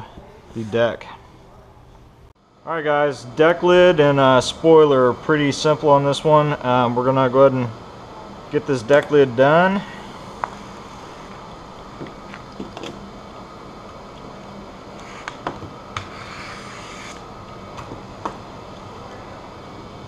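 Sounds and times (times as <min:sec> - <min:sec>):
low room hum: 0:00.0 - 0:20.0
squeegee scraping film: 0:16.0 - 0:17.3.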